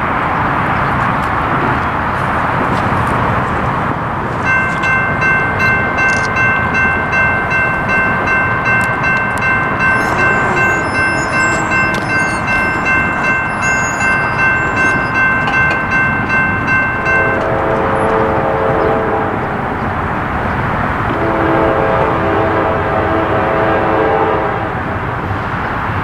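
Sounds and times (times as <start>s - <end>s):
railroad crossing bell ringing: 4.3s - 24.3s
locomotive horn: 8.8s - 15.1s, 17.0s - 19.8s, 21.1s - 25.0s.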